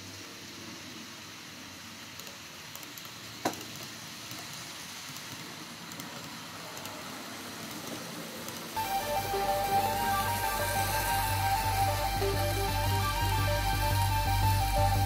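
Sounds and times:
model train rolling on track: 0:00.0 - 0:15.0
music: 0:08.8 - 0:15.0.

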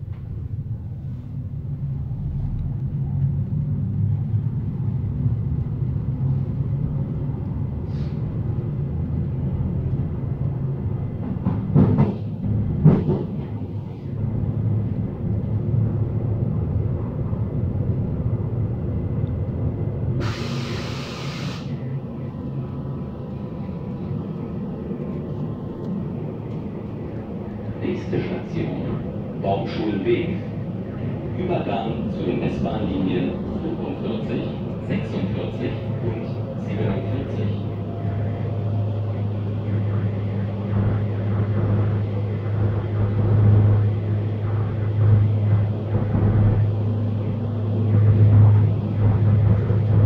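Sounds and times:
train interior rumble: 0:00.0 - 0:50.0
burst of hiss: 0:20.2 - 0:21.7.

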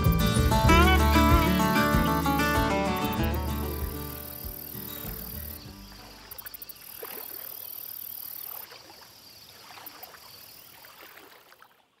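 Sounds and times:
high insect chirring: 0:00.0 - 0:10.8
paddle splashing in water: 0:03.2 - 0:12.0.

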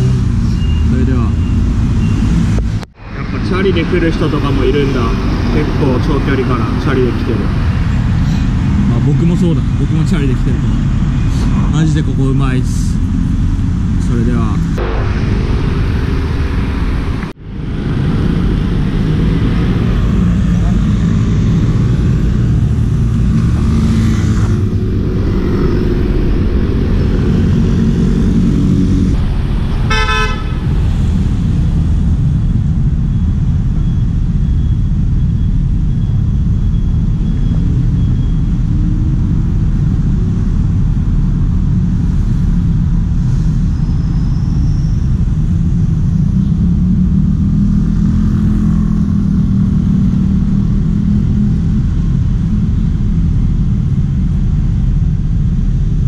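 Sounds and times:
heavy wind rumble on microphone: 0:00.0 - 0:56.0
vehicle horn toot: 0:29.8 - 0:30.8.

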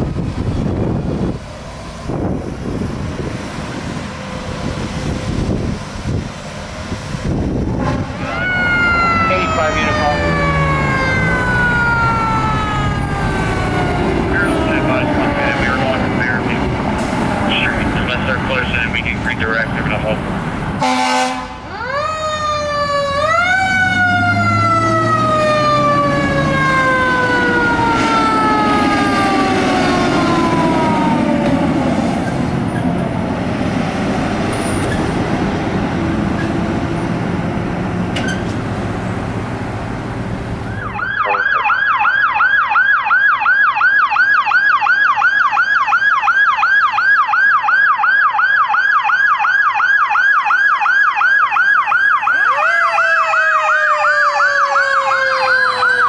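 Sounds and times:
truck engine rumble: 0:00.0 - 0:42.6
fire truck siren wailing: 0:00.0 - 0:56.0
road noise: 0:00.0 - 0:56.0
yelp siren: 0:07.5 - 0:19.7, 0:20.8 - 0:32.0, 0:40.6 - 0:56.0.

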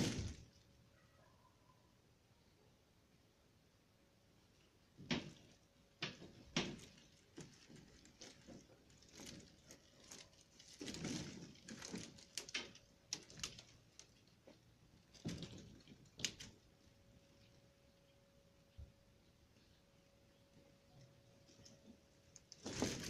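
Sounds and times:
plastic sheeting crinkling: 0:00.0 - 0:00.6, 0:05.1 - 0:17.6, 0:21.3 - 0:23.0.

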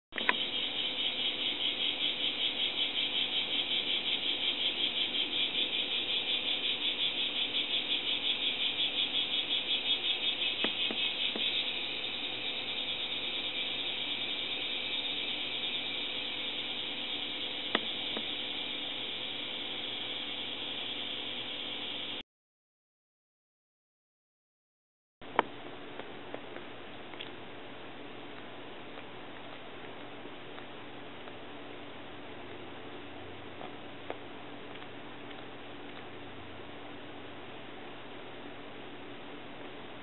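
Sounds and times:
cicadas buzzing: 0:00.1 - 0:22.2
faint steady hum: 0:00.1 - 0:22.2, 0:25.2 - 0:40.0.

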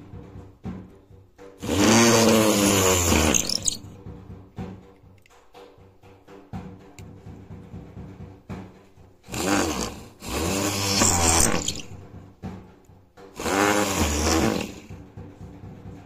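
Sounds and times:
drill drilling into wood: 0:01.6 - 0:03.8, 0:09.3 - 0:12.0, 0:13.4 - 0:14.9.

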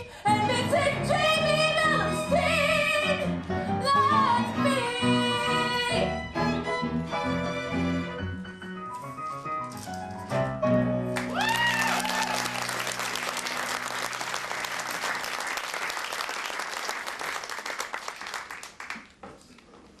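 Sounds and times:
person cheering: 0:11.2 - 0:12.8
audience applause: 0:11.2 - 0:19.2.

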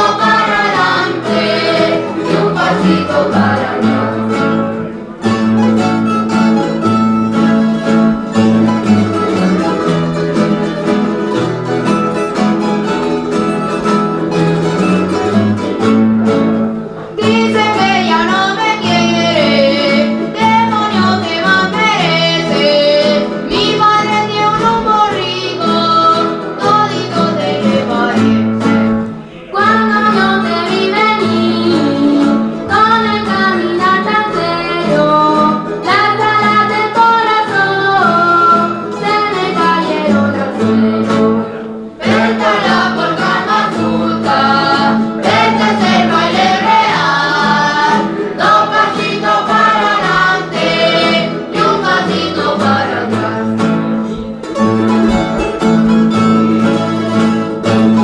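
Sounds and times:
choir singing: 0:00.0 - 0:05.1, 0:17.2 - 0:35.0, 0:35.8 - 0:54.2
guitars and plucked strings: 0:00.0 - 0:58.0.

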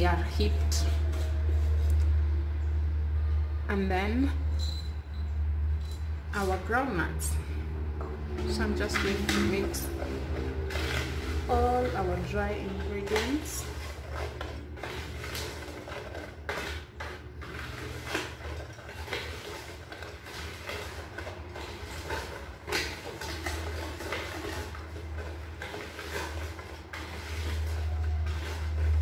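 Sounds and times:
whisk scratching in bowl: 0:00.0 - 0:02.0, 0:08.2 - 0:29.0.

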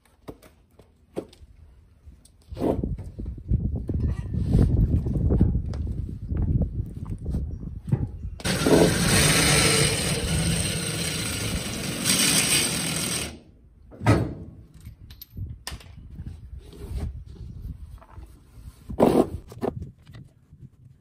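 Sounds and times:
cordless drill running under load: 0:08.4 - 0:13.4.

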